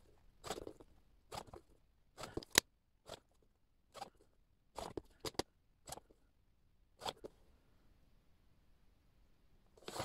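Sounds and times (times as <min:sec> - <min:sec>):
paper trimmer blade scraping: 0:00.4 - 0:04.2, 0:09.8 - 0:10.0.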